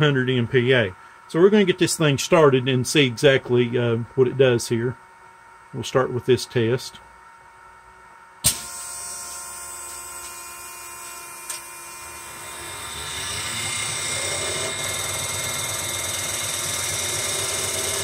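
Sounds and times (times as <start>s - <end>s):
pump drive running with whine: 0.0s - 18.0s.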